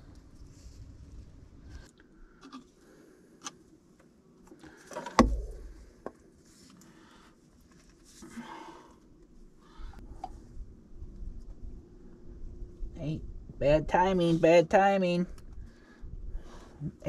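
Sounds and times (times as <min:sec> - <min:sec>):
rustling: 0:04.6 - 0:09.9.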